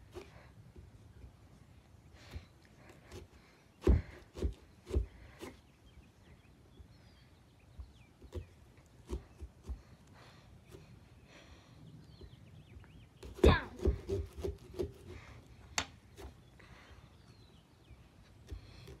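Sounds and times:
knocks of carving tool in pumpkin: 13.2s - 15.1s.

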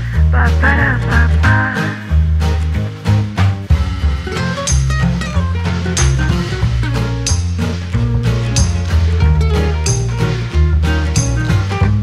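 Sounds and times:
jazzy instrumental music: 0.0s - 12.0s.

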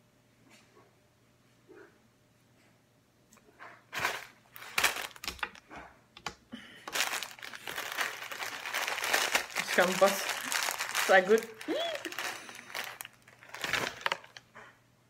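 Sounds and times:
plastic snack bag crinkling: 3.9s - 5.7s, 6.8s - 14.5s.

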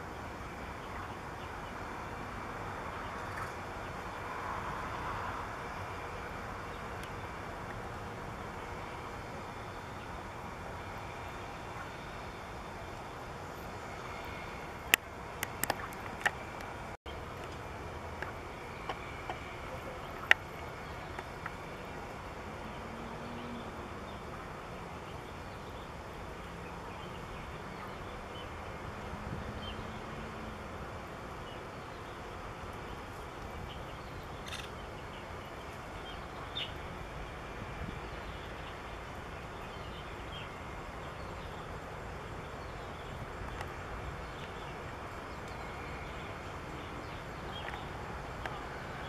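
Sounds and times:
outdoor background noise: 0.0s - 49.0s.

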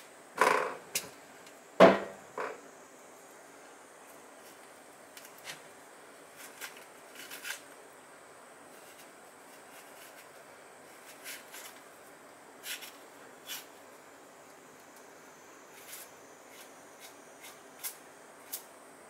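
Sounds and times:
metal spoon scraping seeds: 6.3s - 7.8s, 8.7s - 11.9s, 12.6s - 13.8s, 15.7s - 18.7s.

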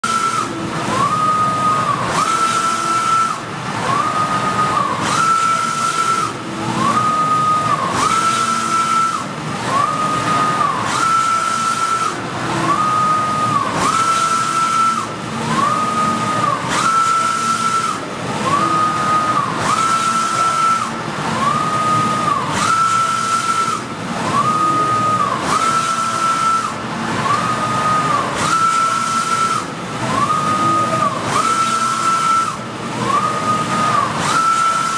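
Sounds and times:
printer carriage whine: 0.0s - 34.9s
steady printer hiss: 0.0s - 34.9s.

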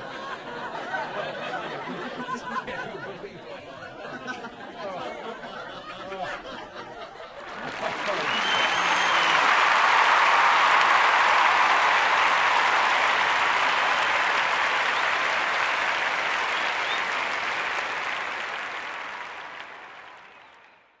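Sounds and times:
applause: 7.4s - 21.0s.

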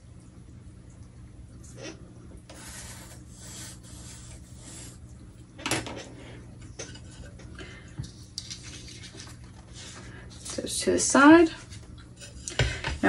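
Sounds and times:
pencil scratching on paper: 2.5s - 5.0s.

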